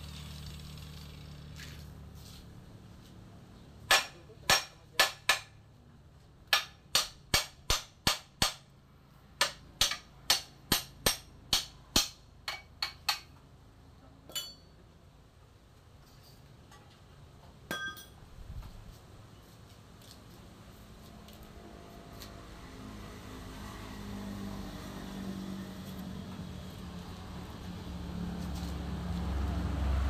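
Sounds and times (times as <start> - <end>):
hammer striking steel frame: 3.8 - 5.6, 6.4 - 8.7, 9.4 - 13.4, 14.3 - 14.7, 17.7 - 18.2.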